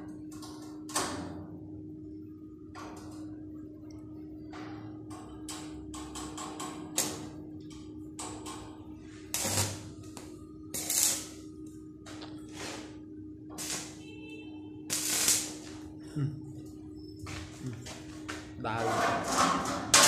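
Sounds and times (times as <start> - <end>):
steady hum: 0.0 - 20.0
crackling welding arc bursts: 6.9 - 7.4, 9.2 - 11.4, 12.5 - 14.0, 14.9 - 15.8.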